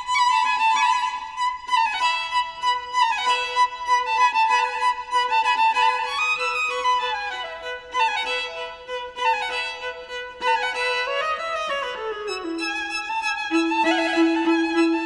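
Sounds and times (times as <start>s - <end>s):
instrumental background music: 12.2s - 15.0s.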